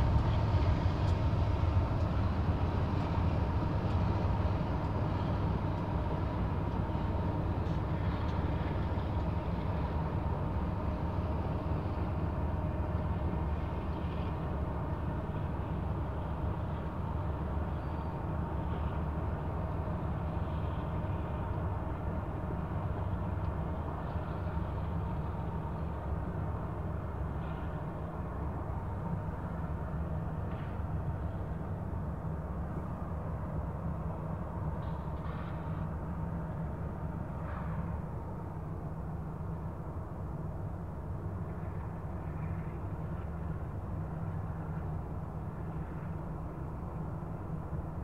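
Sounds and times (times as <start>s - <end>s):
freight train rumbling on bridge: 0.0s - 48.0s.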